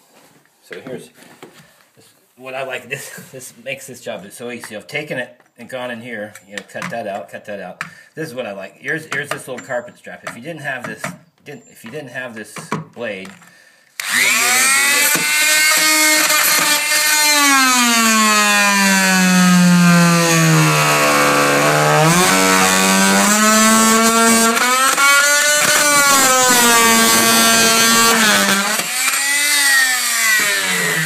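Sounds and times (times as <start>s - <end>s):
oscillating multi-tool cutting wood: 14.0s - 31.0s.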